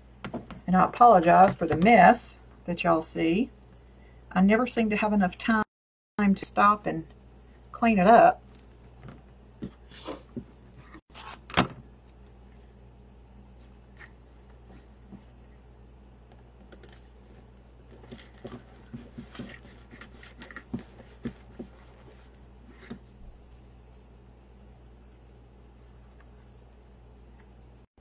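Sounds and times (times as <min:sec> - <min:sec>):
steady low hum: 0:00.0 - 0:05.6, 0:06.2 - 0:28.0
ribbon rustling: 0:16.8 - 0:24.2.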